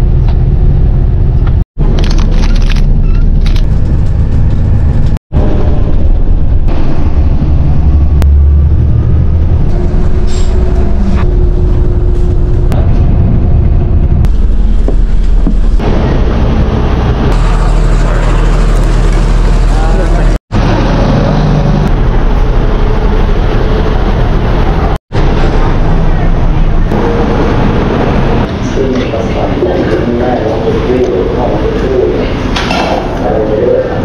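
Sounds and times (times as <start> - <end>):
bus engine rumble: 0.0 - 34.0
background voices: 28.4 - 34.0.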